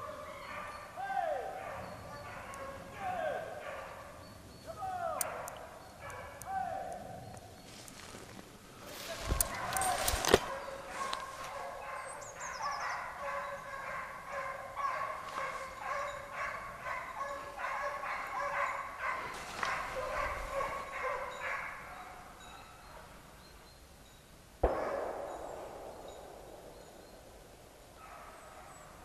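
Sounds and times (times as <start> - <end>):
hounds baying: 0.0 - 7.0, 8.8 - 23.3, 28.0 - 29.0.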